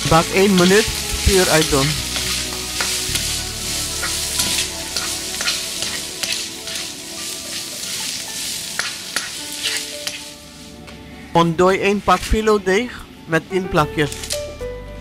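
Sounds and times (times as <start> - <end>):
meat sizzling in a wok: 0.0 - 10.8
spatula scraping a pan: 0.1 - 10.7.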